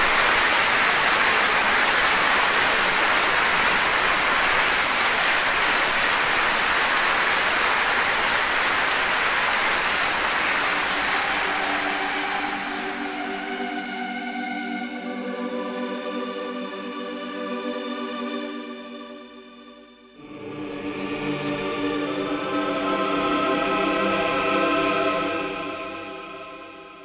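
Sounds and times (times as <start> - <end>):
soft sustained music: 7.3 - 27.0.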